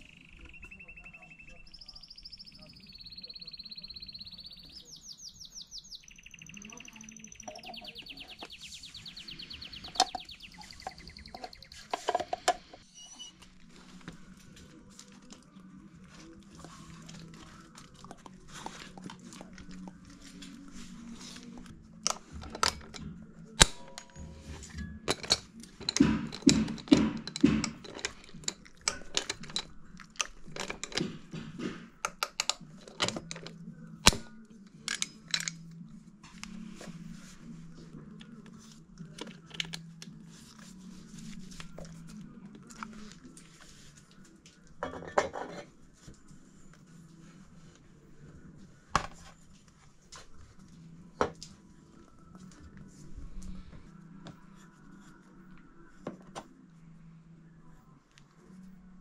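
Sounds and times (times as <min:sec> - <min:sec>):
background music: 0:05.2 - 0:59.0
hand tools clicking and knocking: 0:09.6 - 0:12.9, 0:21.1 - 0:35.8.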